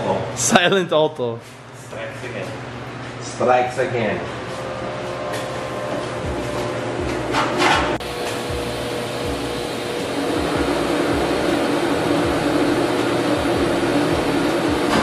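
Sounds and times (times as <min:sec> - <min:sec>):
welder humming and hissing: 0:08.0 - 0:15.0.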